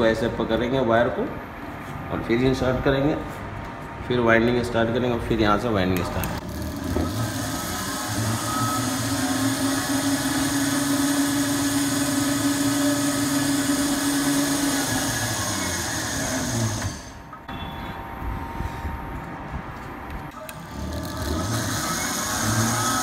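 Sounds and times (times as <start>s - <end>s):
coil winding machine motor: 6.2s - 17.4s, 20.3s - 23.0s.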